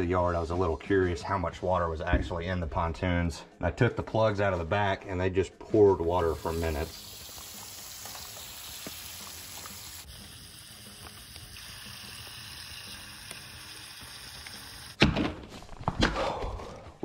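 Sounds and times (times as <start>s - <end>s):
water draining onto dirt: 6.1s - 15.0s.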